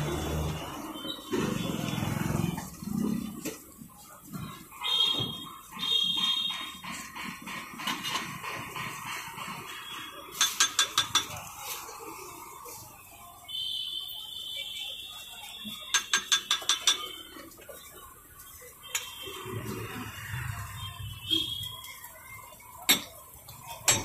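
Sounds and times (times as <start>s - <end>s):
metal masher clanking on griddle: 6.3s - 11.4s.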